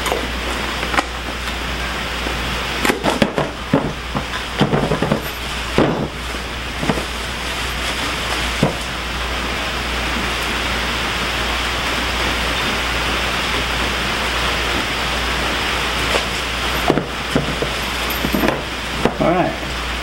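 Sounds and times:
rain hissing: 0.0 - 20.0
cardboard box rustling: 3.0 - 9.0.

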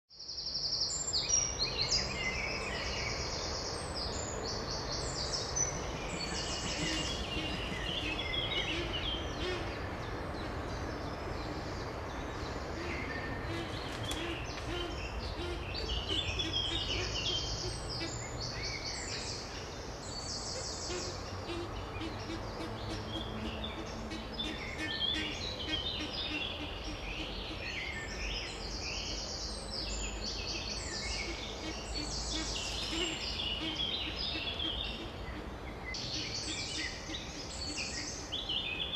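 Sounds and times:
songbirds singing in chorus: 0.2 - 38.9
low background rumble: 5.5 - 16.9.

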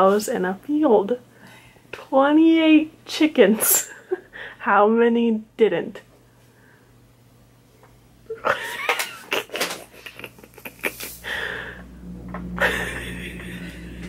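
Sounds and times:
woman wheezing laughter: 8.3 - 11.8, 12.6 - 14.0.

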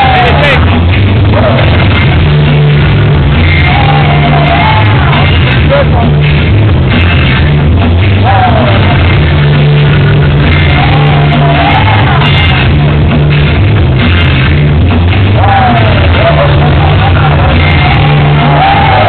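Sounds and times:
heavy repeating bass line: 0.0 - 19.0
person singing: 3.4 - 6.3, 8.2 - 9.7, 10.4 - 13.1, 15.3 - 19.0.

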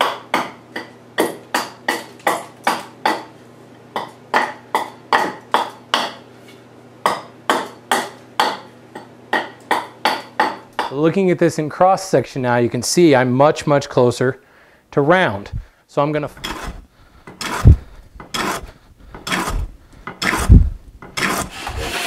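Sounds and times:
hatchet chopping wood: 0.0 - 3.3, 4.0 - 6.2, 7.1 - 8.7, 9.3 - 10.9.

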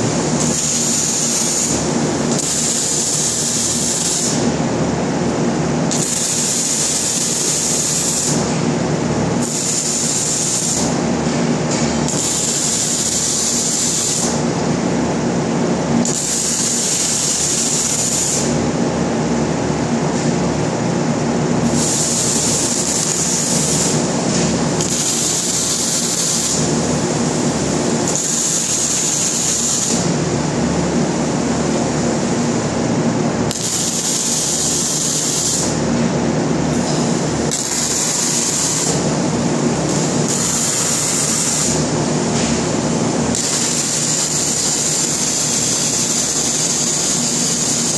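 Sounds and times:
arc welding crackle: 0.0 - 4.6, 5.9 - 8.7, 9.3 - 11.2, 12.0 - 14.5, 16.0 - 18.7, 21.6 - 30.4, 33.5 - 36.0, 36.7 - 42.1, 42.7 - 47.9
workshop noise: 0.0 - 47.9.

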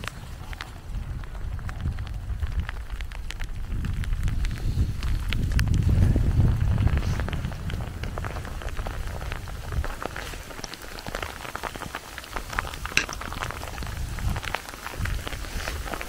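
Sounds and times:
rain falling: 0.0 - 16.0
raindrops tapping a surface: 0.0 - 16.0.

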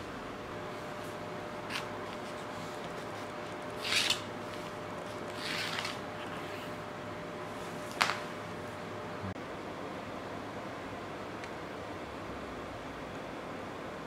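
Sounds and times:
steady background hum: 0.0 - 14.0
pencil scratching on wood: 1.7 - 3.9.

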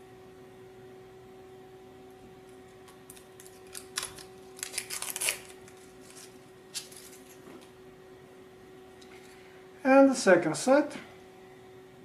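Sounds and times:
faint steady hum: 0.0 - 12.0
plastic film peeling crackles: 2.8 - 7.7.

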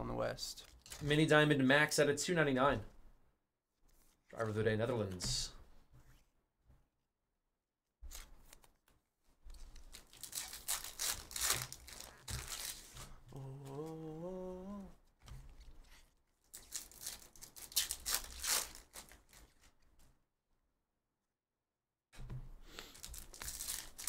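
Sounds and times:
foil wrapper crinkling: 9.5 - 13.2, 16.4 - 19.8, 22.9 - 24.0
person humming: 13.2 - 15.0.

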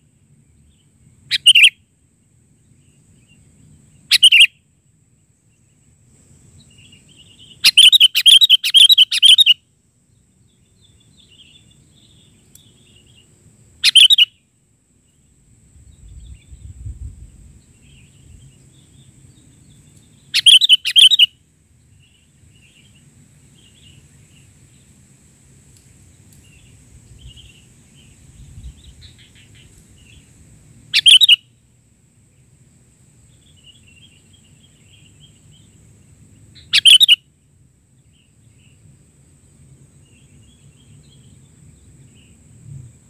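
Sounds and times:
soft bird chirps: 0.0 - 1.8, 2.6 - 4.5, 6.5 - 14.4, 15.9 - 25.0, 26.1 - 30.3, 30.9 - 31.7, 36.5 - 37.2.

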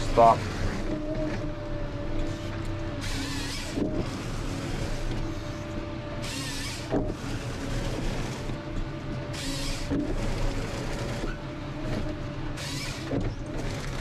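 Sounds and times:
harvester engine drone with whine: 0.0 - 14.0.

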